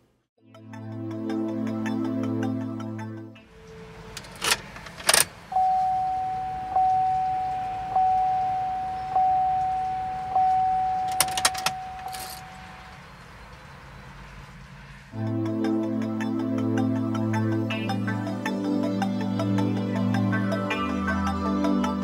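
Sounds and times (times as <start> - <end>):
dashboard warning chime: 5.5 - 13.1
car ignition key clicking: 9.6 - 12.5.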